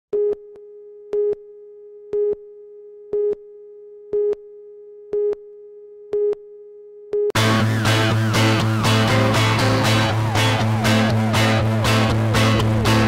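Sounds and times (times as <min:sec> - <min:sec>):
steady electronic tone: 0:07.4 - 0:13.0.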